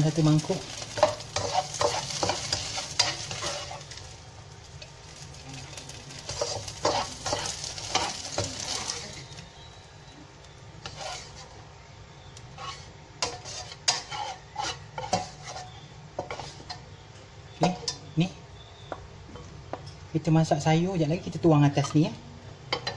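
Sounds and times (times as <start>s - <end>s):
utensil scraping a wok: 0.0s - 9.7s, 10.8s - 16.9s
oil sizzling in pan: 0.0s - 18.0s.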